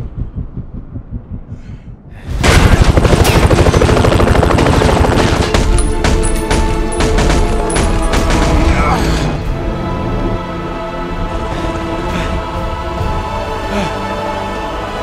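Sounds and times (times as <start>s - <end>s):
low rhythmic pulsing: 0.0s - 15.0s
automatic machine-gun fire: 2.4s - 5.8s.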